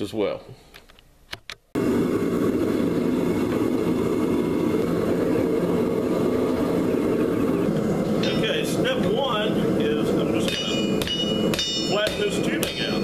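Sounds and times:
gas burner rushing: 1.8s - 13.0s.

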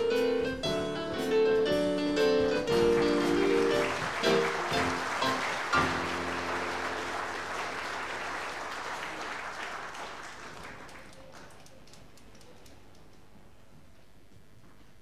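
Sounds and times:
audience applauding: 2.6s - 12.8s.

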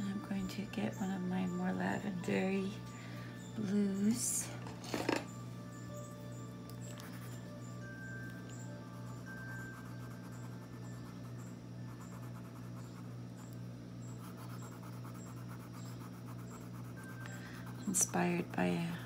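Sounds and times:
steady low hum: 0.0s - 19.0s
pencil scratching on paper: 9.0s - 13.1s, 14.1s - 19.0s.

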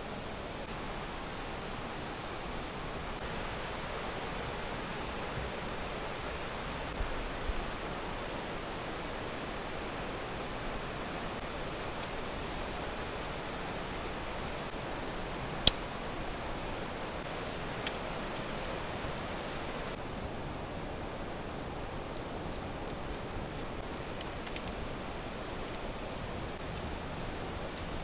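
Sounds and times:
river rushing over rapids: 0.0s - 21.9s
sharp click: 15.6s - 15.9s.

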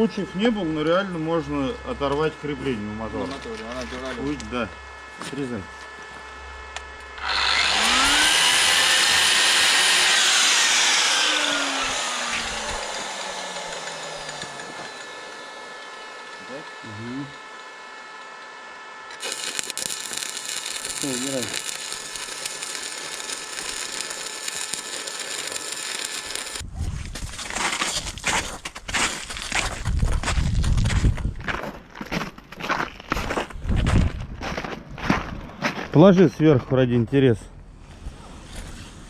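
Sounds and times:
arc welding crackle and hiss: 0.0s - 5.6s, 6.2s - 14.7s, 19.1s - 26.6s
angle grinder cutting steel: 6.8s - 26.6s.

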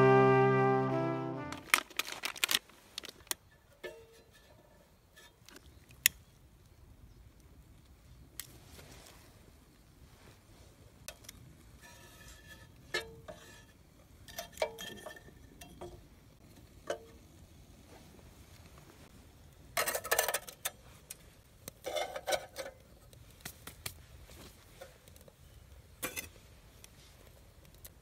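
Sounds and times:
metal clinks on camping stove: 3.4s - 5.6s, 11.1s - 17.3s, 19.8s - 23.0s, 25.9s - 26.4s
rustling and scraping: 8.5s - 9.4s, 11.6s - 15.9s.

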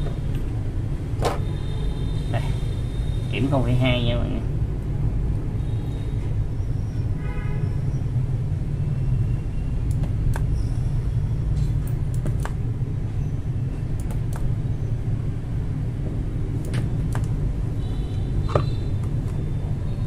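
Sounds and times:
steady low hum: 8.0s - 20.0s.

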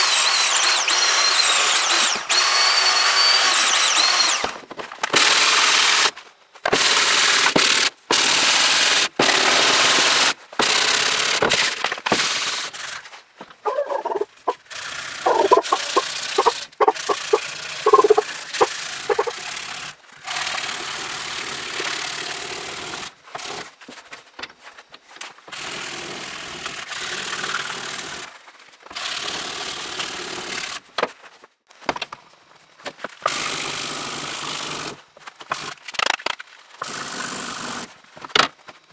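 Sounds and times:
filing and sanding strokes: 13.9s - 19.4s
metal rasping on abrasive paper: 14.0s - 19.4s.

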